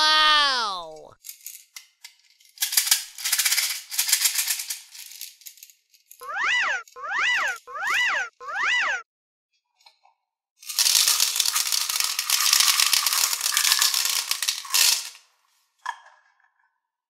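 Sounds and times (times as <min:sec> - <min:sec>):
plastic beads rattling into tray: 0:02.6 - 0:05.6, 0:10.6 - 0:15.2
short electronic tones: 0:06.2 - 0:09.0.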